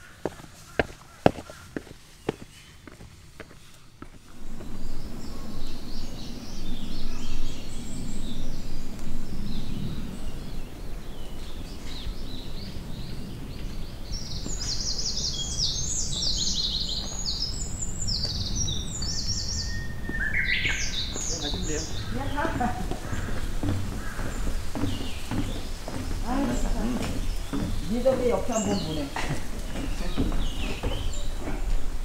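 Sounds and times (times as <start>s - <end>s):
forest birds chirping and singing: 0.0s - 32.0s
steady low rumble: 3.2s - 20.0s.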